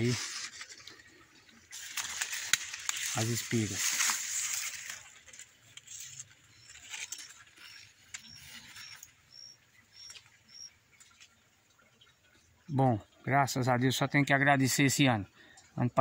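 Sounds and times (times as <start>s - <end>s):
corn leaves rustling: 0.0s - 10.4s
bird chirping: 5.9s - 11.3s.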